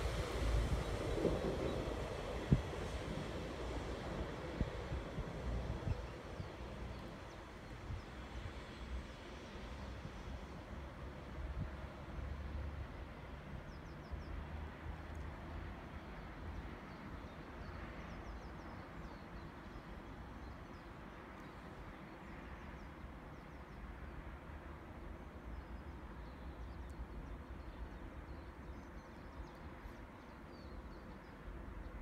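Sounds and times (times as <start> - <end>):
steady low rumble: 0.0 - 6.9.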